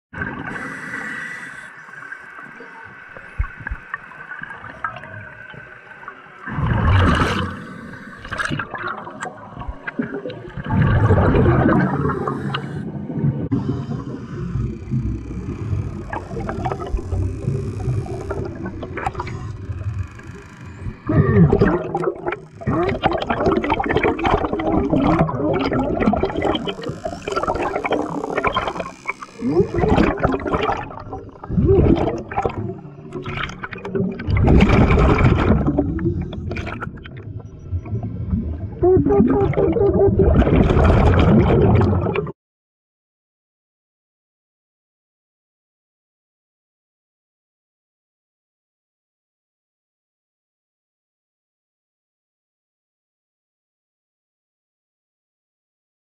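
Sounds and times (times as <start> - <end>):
underwater bubbles rushing: 1.9 - 42.3
crackling bubble noise: 6.5 - 7.6, 8.2 - 13.7, 21.4 - 42.3.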